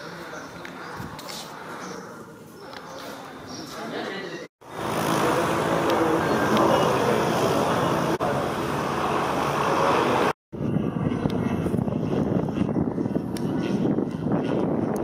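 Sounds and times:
propeller plane engine running: 4.6 - 15.0.

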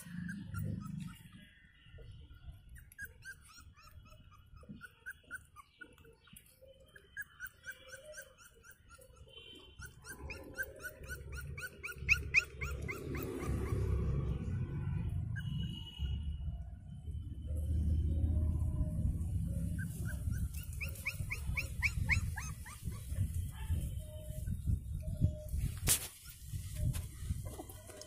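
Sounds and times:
puppies whimpering: 0.0 - 1.5, 2.2 - 14.0, 19.6 - 25.5.

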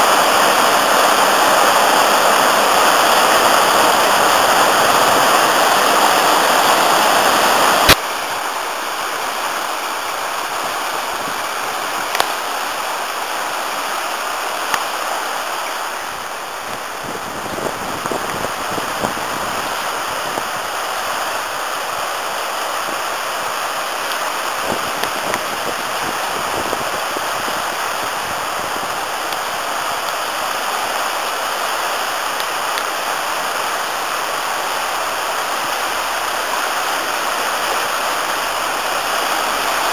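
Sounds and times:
river rushing over rapids: 0.0 - 39.9
stream over rocky bed: 0.0 - 39.9.

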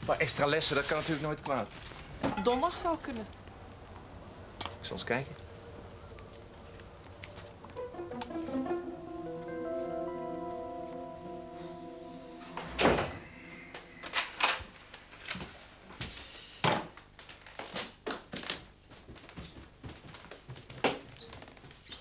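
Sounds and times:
short musical chime: 7.8 - 15.0
footsteps in a hallway: 18.1 - 22.0.

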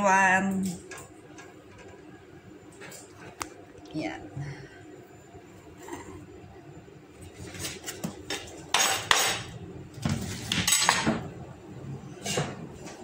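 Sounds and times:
kitchenware clattering and clinking: 7.5 - 11.3.

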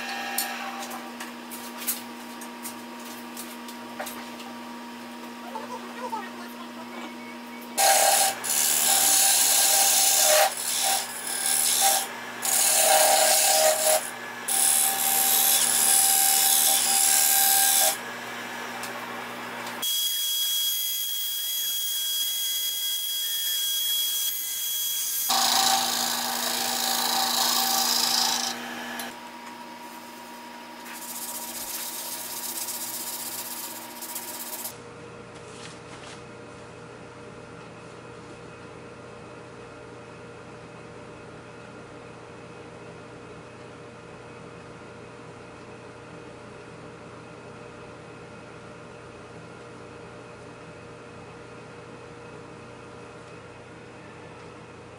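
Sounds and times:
power tool cutting wood: 7.8 - 29.4.

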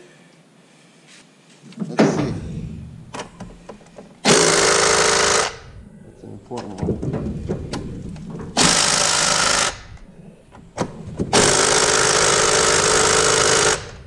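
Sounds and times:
power tool driving bolt: 3.1 - 5.7, 6.8 - 14.0.

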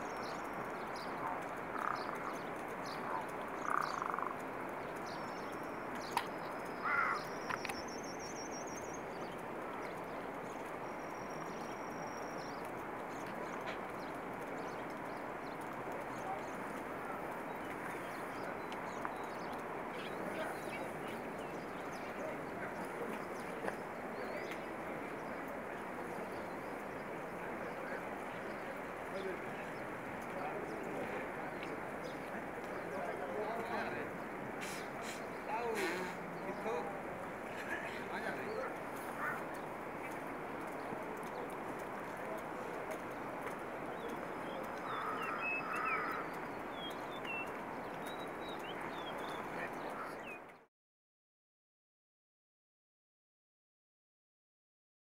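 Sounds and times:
bird call: 0.0 - 4.4, 5.0 - 8.8, 34.6 - 36.6, 44.0 - 50.5
outdoor background noise: 0.0 - 50.7
small birds chirping: 0.0 - 50.7.

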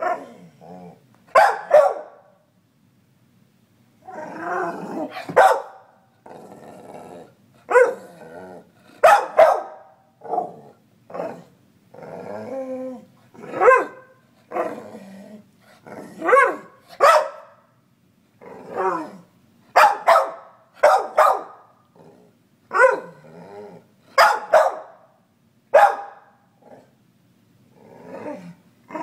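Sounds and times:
dog barking: 0.0 - 0.3, 1.3 - 2.3, 5.2 - 5.9, 7.7 - 8.0, 9.0 - 10.5, 13.5 - 14.1, 16.2 - 17.6, 19.8 - 21.7, 22.7 - 23.2, 24.2 - 25.1, 25.8 - 26.3.

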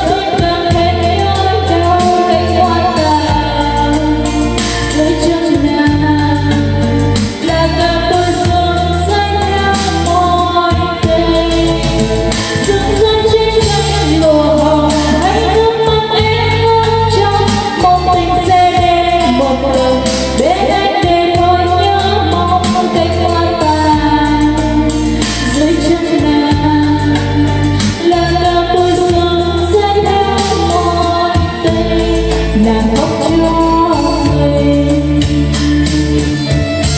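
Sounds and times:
karaoke backing track with bass: 0.0 - 36.9
woman singing karaoke: 0.0 - 36.9.

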